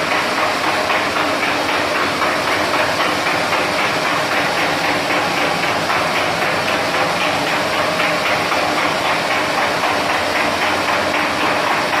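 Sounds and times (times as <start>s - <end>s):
fryer machine hum: 0.0s - 12.0s.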